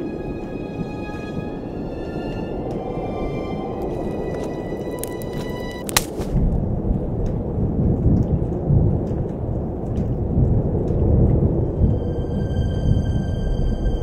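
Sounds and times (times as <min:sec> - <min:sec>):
music: 0:00.0 - 0:06.1, 0:11.0 - 0:14.0
rain: 0:00.0 - 0:14.0
thunder rumbling: 0:00.0 - 0:14.0.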